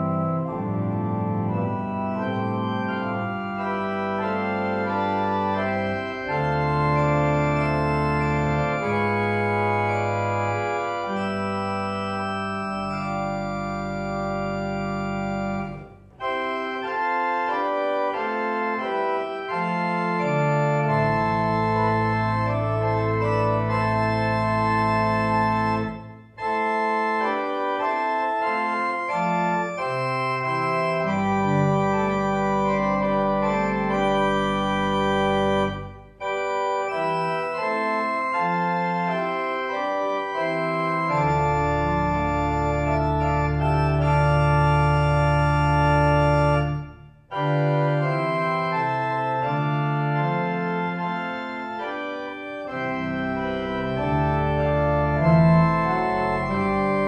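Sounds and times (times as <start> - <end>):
organ music: 0.0 - 57.0.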